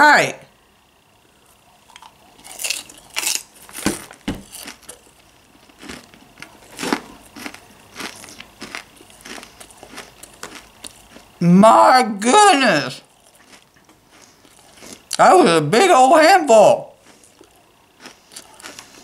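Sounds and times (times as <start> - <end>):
popcorn chewing crunches: 1.3 - 11.5, 12.9 - 15.3, 16.9 - 19.0.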